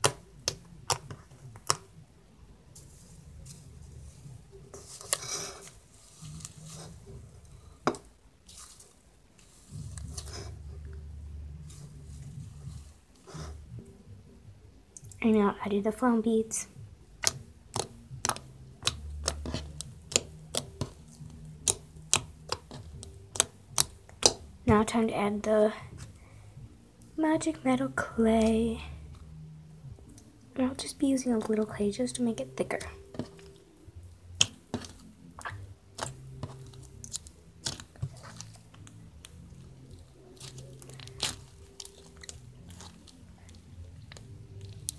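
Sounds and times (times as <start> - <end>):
slime clicking and popping: 17.2 - 24.5, 34.4 - 44.9.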